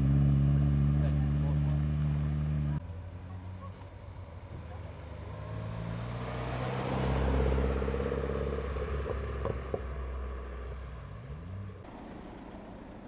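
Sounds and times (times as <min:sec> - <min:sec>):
car engine driving past: 0:03.4 - 0:12.4.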